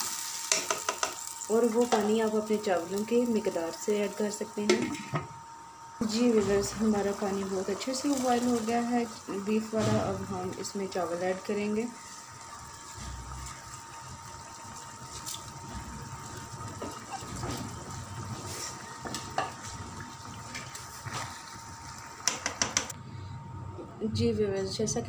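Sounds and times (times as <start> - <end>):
spatula knocking against pan: 0.5 - 1.2, 22.2 - 22.9
stock bubbling in a pan: 6.2 - 22.9.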